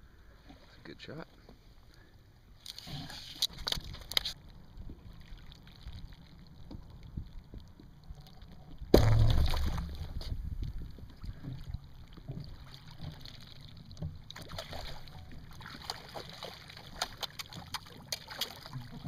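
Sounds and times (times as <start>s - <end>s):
fish splashing in water: 8.9s - 10.3s, 11.3s - 19.0s.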